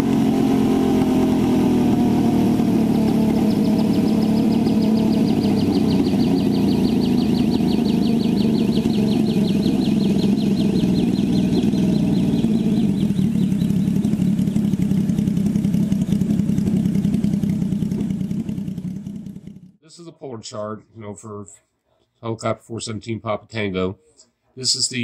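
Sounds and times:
high warbling whine: 0.0 - 18.8
helicopter engine and rotor drone: 0.0 - 19.2.

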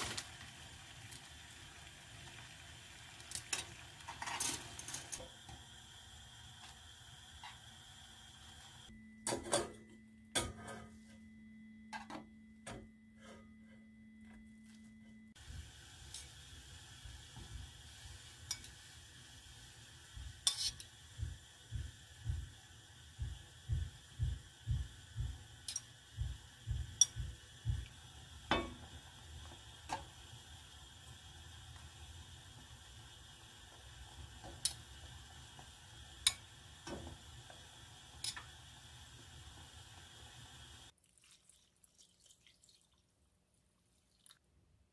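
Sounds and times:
simmering hiss: 0.0 - 8.9, 15.3 - 40.9
low hum: 8.8 - 17.8
metal tongs clinking on a pot: 18.4 - 18.8, 20.4 - 20.9, 25.6 - 25.9, 36.2 - 36.5, 38.2 - 38.5.

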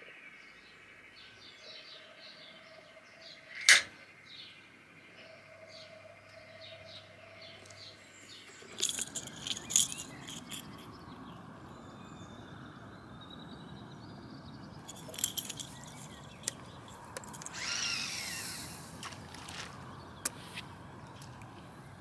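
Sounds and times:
outdoor ambience: 0.0 - 22.0
bird calling: 5.2 - 11.0, 14.8 - 20.6
metal hooks clinking: 8.4 - 10.9, 14.8 - 17.6.

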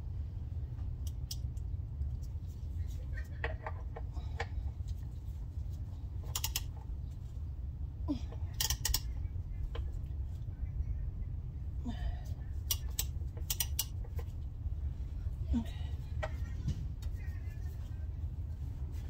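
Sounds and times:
low outdoor rumble: 0.0 - 19.0
socket ratchet clicking: 6.2 - 6.8, 8.5 - 9.2, 12.7 - 14.2.

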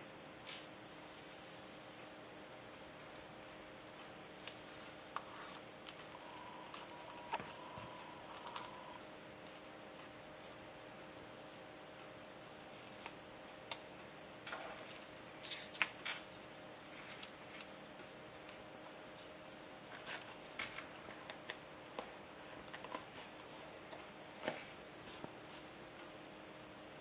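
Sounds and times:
card rustling: 5.2 - 9.0.

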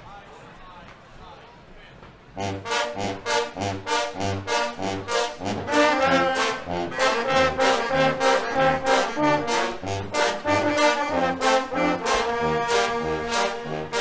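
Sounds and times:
brass band playing carnival music: 2.4 - 14.0
saxophones: 2.4 - 14.0
sousaphones: 2.4 - 14.0
trombones: 2.4 - 14.0
trumpets: 2.4 - 14.0.

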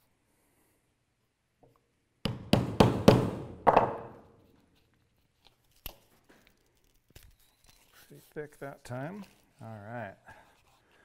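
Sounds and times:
mallet striking chisel through leather: 2.2 - 4.1.

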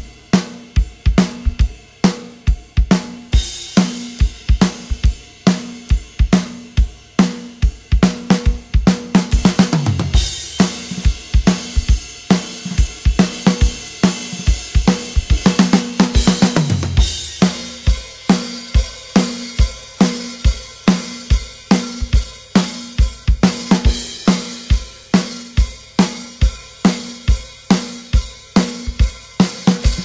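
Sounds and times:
drum kit playing a beat: 0.0 - 30.0.

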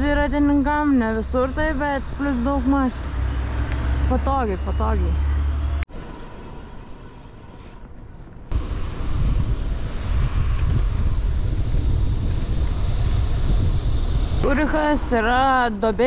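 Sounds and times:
road and tyre hiss: 1.8 - 11.5
wind buffeting microphone: 7.8 - 16.0.

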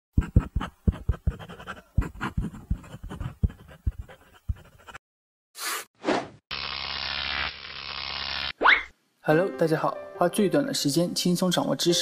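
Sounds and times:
pencil writing on paper: 0.2 - 5.0.

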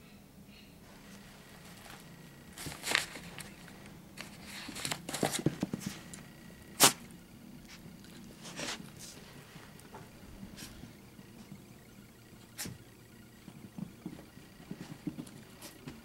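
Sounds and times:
paper rustling and crinkling: 1.0 - 6.2.

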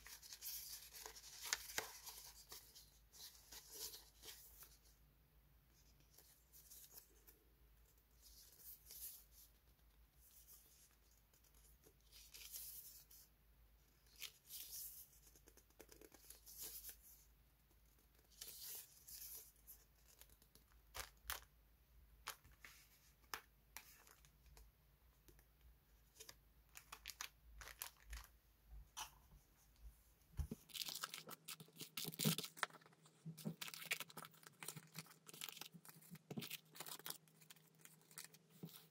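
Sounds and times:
stickers and packets rustling: 26.1 - 28.3, 30.4 - 38.9.

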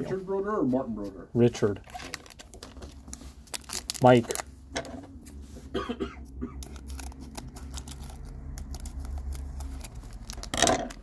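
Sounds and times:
foil pack being handled: 1.8 - 4.4, 6.6 - 11.0.

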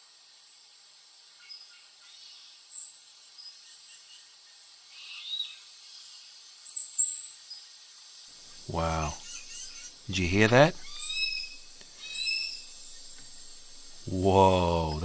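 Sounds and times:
insect drone: 0.0 - 15.0
high bird chirps: 8.5 - 14.2.

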